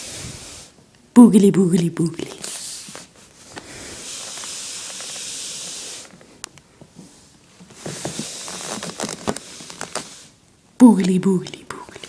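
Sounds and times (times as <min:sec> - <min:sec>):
person hissing into microphone: 0:00.0 - 0:00.8, 0:03.7 - 0:06.1.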